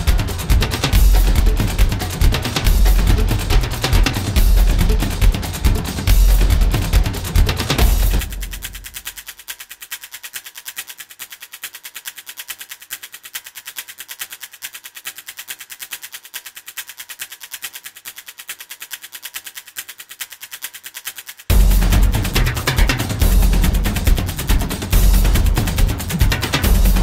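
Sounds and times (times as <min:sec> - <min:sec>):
bass-heavy music: 0:00.0 - 0:09.0, 0:21.5 - 0:27.0
sharp high percussive hits: 0:00.0 - 0:09.5, 0:21.5 - 0:27.0.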